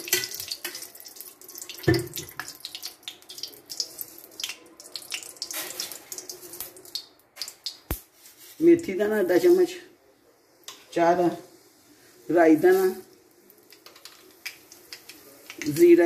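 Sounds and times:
oil crackling and spitting: 0.0 - 8.2.

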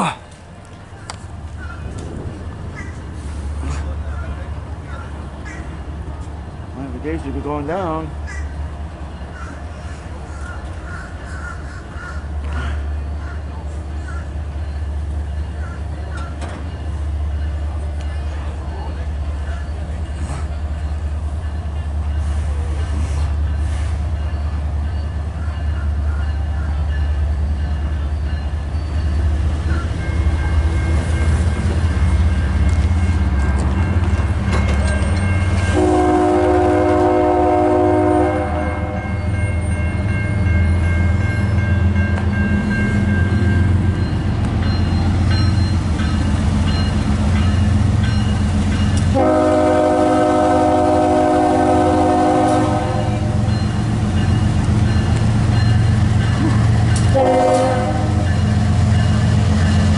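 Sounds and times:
diesel locomotives rumbling: 0.0 - 59.9
train air horn blasts: 35.6 - 39.1, 49.0 - 53.5, 57.1 - 58.3.

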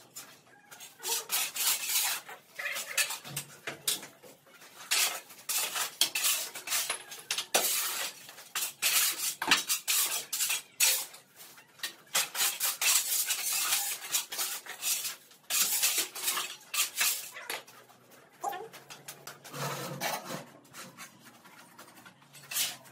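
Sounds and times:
shovel scraping concrete floor: 0.0 - 22.9
debris shovelled into wheelbarrow: 4.6 - 11.3, 12.0 - 17.5.

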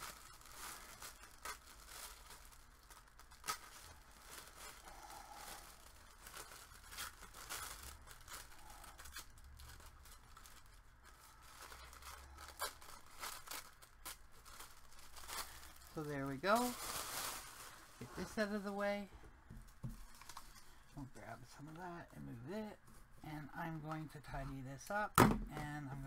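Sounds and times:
tissue paper rustling and tearing: 0.0 - 19.1.

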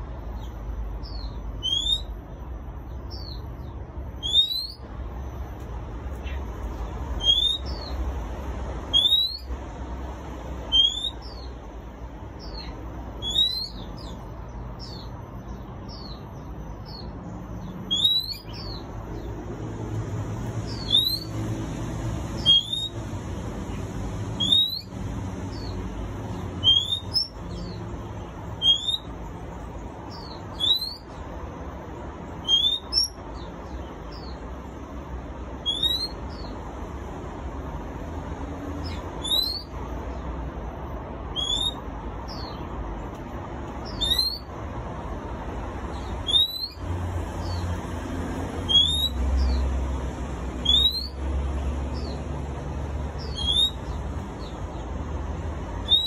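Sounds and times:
bird whistle call: 1.6 - 2.1, 4.2 - 4.8, 7.2 - 7.8, 8.9 - 9.5, 10.7 - 11.3, 13.2 - 13.8, 22.4 - 23.0, 24.4 - 24.9, 26.6 - 27.3, 28.6 - 29.1, 35.6 - 36.2, 39.2 - 39.7, 41.4 - 42.5, 43.9 - 44.4, 46.2 - 46.8, 48.7 - 49.2, 50.6 - 51.2, 53.3 - 53.8.

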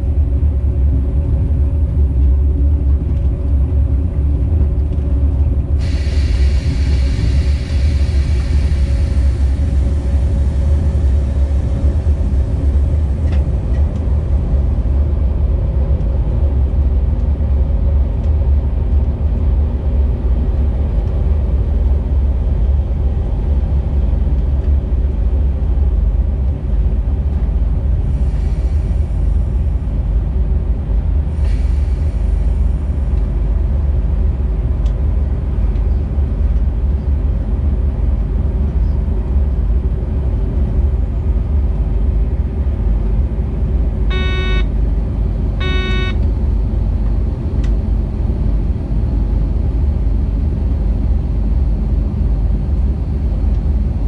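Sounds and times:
freight train rumbling: 0.0 - 54.0
locomotive horn blasts: 44.1 - 44.8, 45.6 - 46.2.

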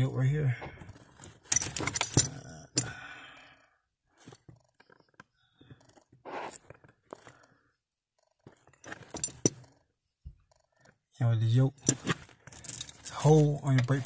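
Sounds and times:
small metallic clicks and clinks: 1.4 - 3.0, 8.2 - 9.8, 11.6 - 14.0
person breathing out: 2.8 - 3.8.

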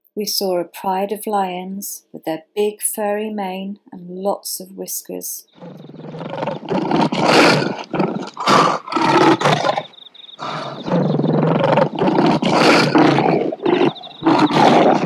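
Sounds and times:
lion roaring and growling: 5.5 - 15.0.

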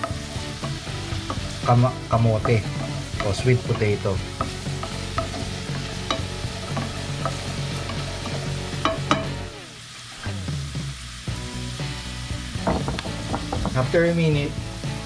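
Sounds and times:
wooden spatula scraping pan: 0.0 - 8.5
sweet potato sizzling in oil: 0.0 - 15.0.

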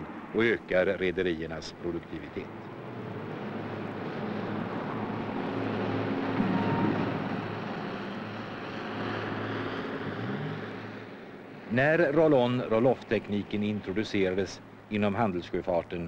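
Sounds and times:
forklift engine droning: 2.7 - 11.7.

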